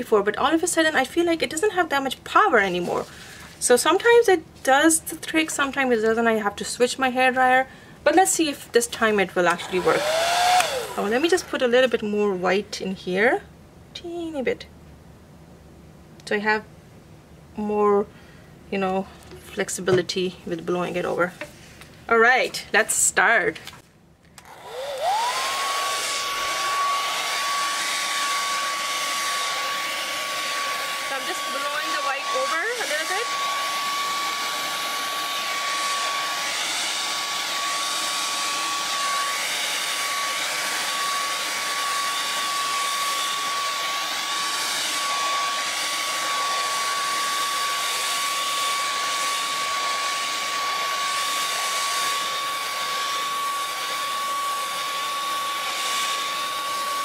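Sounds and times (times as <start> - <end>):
hair dryer motor whine: 9.5 - 11.6, 24.4 - 57.0.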